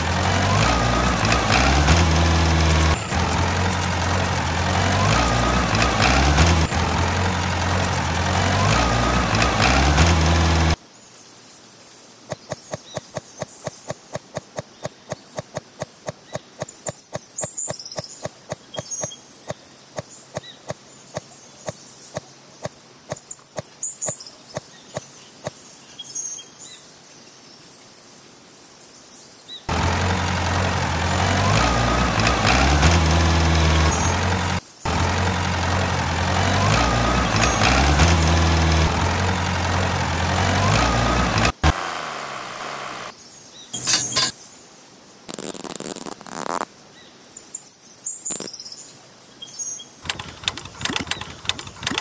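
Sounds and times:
tractor engine drone: 0.0s - 10.8s, 29.7s - 43.1s, 43.8s - 44.3s, 50.0s - 52.0s
hand tool clicking in sand: 12.3s - 20.5s, 43.8s - 44.3s, 50.0s - 52.0s
birds chirping: 12.3s - 26.1s, 29.7s - 44.4s.

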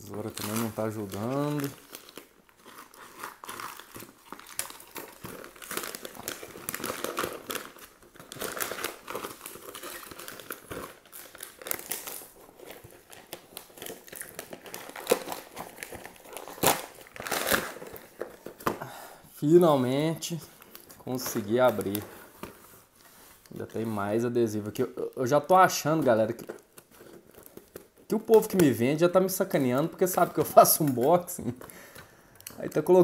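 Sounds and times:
paper and tape crinkling: 0.0s - 33.0s.

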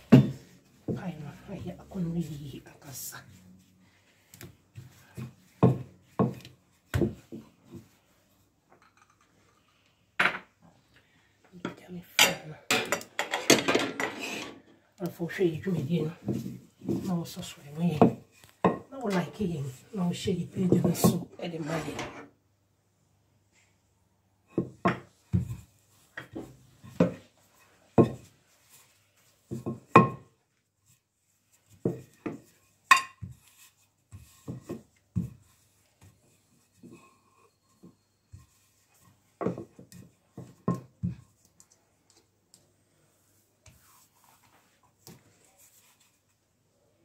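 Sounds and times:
rolling pin on countertop: 4.4s - 8.0s, 16.2s - 22.2s, 24.5s - 41.5s.

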